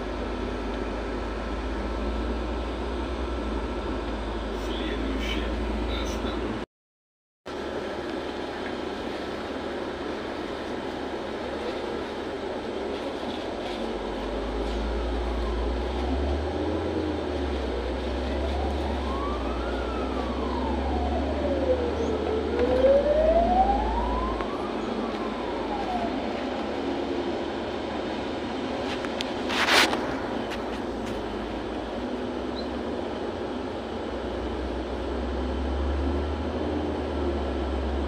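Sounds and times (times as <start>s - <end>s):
bus engine and road rumble: 0.0s - 6.7s, 7.5s - 38.0s
wailing tone: 18.4s - 26.4s.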